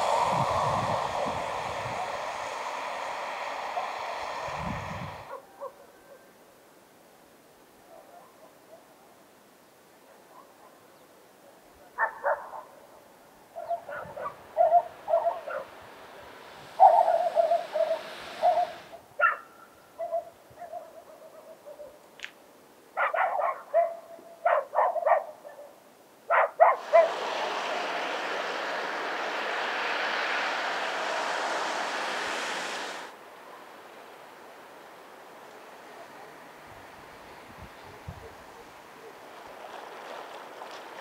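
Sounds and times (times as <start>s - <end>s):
steady rushing noise: 0.0s - 5.4s, 14.1s - 19.0s, 26.8s - 41.0s
dog barking and yelping: 12.0s - 12.6s, 16.8s - 21.9s, 23.0s - 25.7s, 26.3s - 27.1s.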